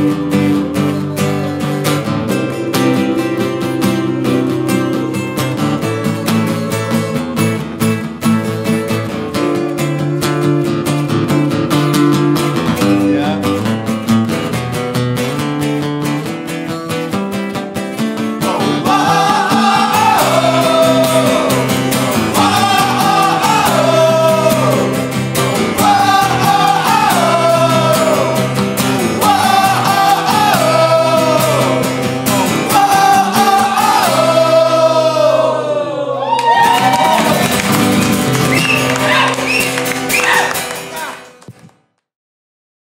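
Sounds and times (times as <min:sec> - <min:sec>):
acoustic guitars strummed: 0:00.0 - 0:36.0, 0:36.6 - 0:41.4
people singing together: 0:02.0 - 0:07.6, 0:18.4 - 0:36.4
people shouting and cheering: 0:18.4 - 0:41.4.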